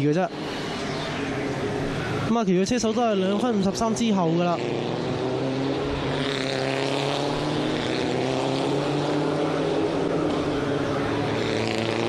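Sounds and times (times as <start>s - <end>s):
racing car engines at high revs: 0.0s - 12.0s.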